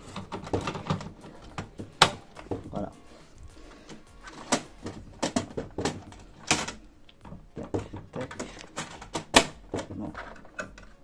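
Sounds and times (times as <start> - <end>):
handling noise: 0.0 - 11.0
plastic clicks and knocks: 4.4 - 11.0.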